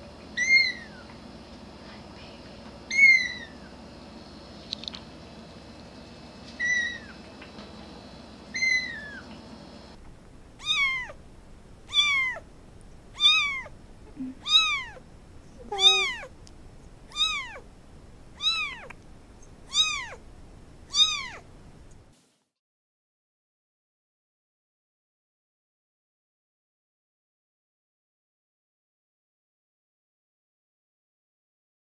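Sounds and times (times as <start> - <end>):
kitten mewing: 0.4 - 1.0, 2.9 - 3.7, 6.6 - 7.2, 8.5 - 9.3, 10.6 - 11.2, 11.9 - 12.4, 13.1 - 15.0, 15.6 - 16.3, 17.1 - 17.6, 18.4 - 19.0, 19.7 - 20.2, 20.9 - 21.4
young kitten meowing: 0.4 - 1.0, 2.9 - 3.7, 6.6 - 7.2, 8.5 - 9.2, 10.6 - 11.2, 11.9 - 12.4, 13.2 - 15.0, 15.6 - 16.3, 17.1 - 17.6, 18.4 - 19.0, 19.7 - 20.2, 20.9 - 21.4.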